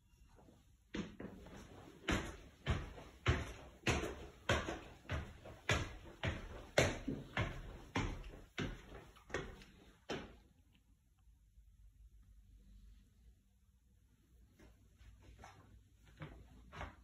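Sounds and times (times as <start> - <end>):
footsteps on wooden stairs: 1.0 - 10.3.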